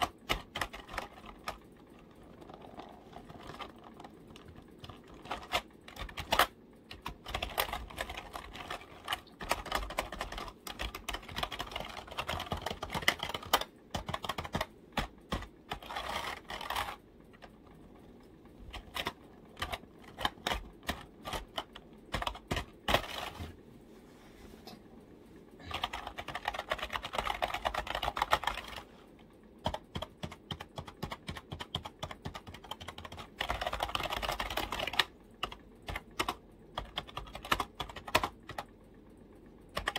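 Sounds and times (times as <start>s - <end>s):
computer keyboard key clicks: 3.4s - 17.0s, 29.6s - 38.6s.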